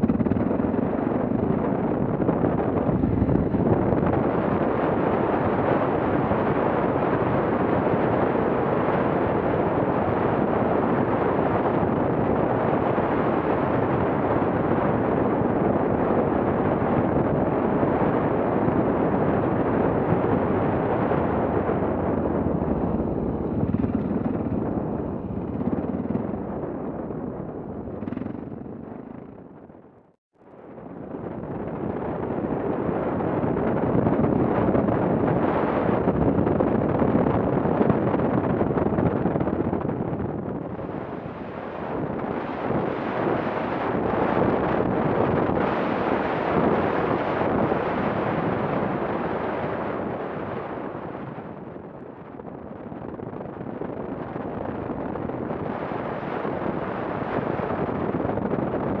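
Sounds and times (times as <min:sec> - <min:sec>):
wind rushing on microphone: 0:00.0 - 0:59.0
motorcycle road noise on gravel: 0:20.2 - 0:29.5.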